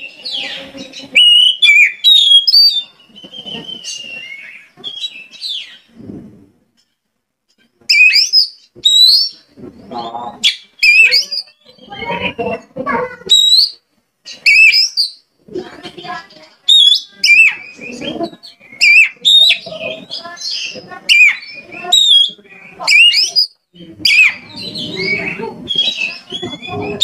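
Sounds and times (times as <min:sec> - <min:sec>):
bird harsh chattering: 0:00.3 - 0:05.8, 0:07.9 - 0:09.4, 0:10.4 - 0:15.2, 0:16.0 - 0:27.0
bird whistled song: 0:00.3 - 0:05.8, 0:07.9 - 0:09.4, 0:10.4 - 0:11.6, 0:13.3 - 0:13.8, 0:14.4 - 0:15.2, 0:16.7 - 0:27.0.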